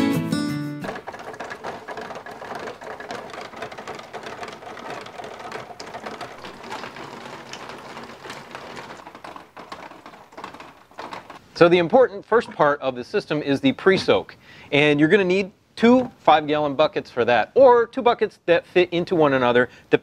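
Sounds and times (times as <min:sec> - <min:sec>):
acoustic guitar music: 0:00.0 - 0:01.0
water dripping onto plastic trays: 0:00.9 - 0:11.4.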